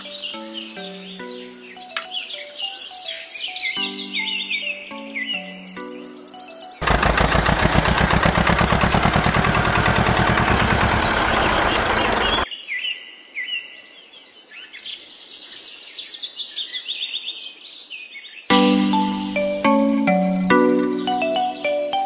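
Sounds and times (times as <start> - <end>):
birds chirping: 0.0 - 12.5, 18.9 - 22.0
small engine running: 6.8 - 12.4.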